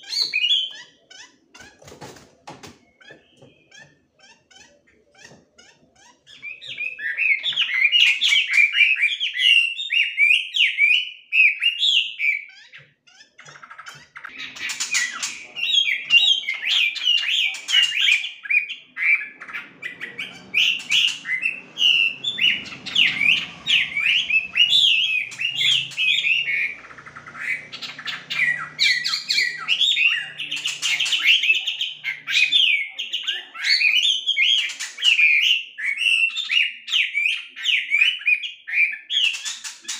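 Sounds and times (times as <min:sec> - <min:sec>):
bird singing whistled notes: 0:15.0 - 0:39.1.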